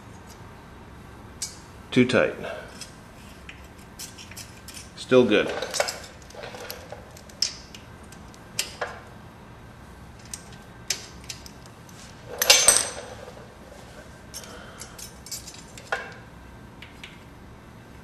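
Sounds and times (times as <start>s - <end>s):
metallic clatter: 2.7s - 9.0s, 10.2s - 13.6s.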